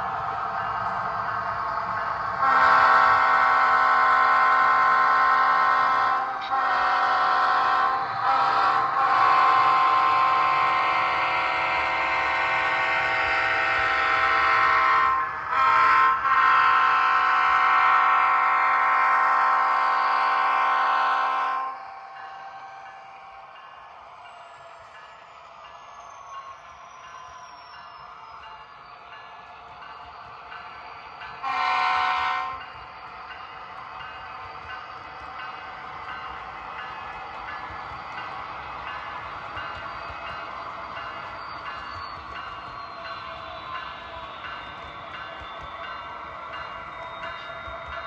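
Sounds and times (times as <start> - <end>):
model train air horn blasts: 2.4 - 21.8, 31.4 - 32.7.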